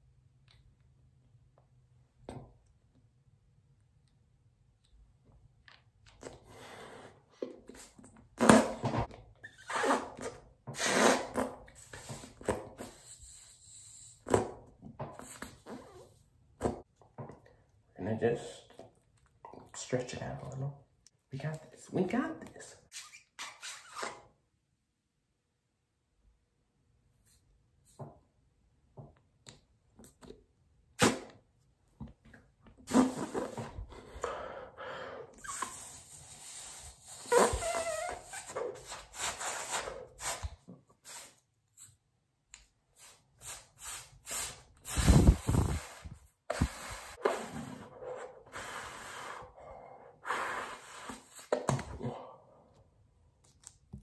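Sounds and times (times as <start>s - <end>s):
person blowing into balloon: 6.4s - 14.5s, 15.2s - 16.2s, 32.8s - 41.4s, 43.0s - 49.6s, 50.2s - 52.0s.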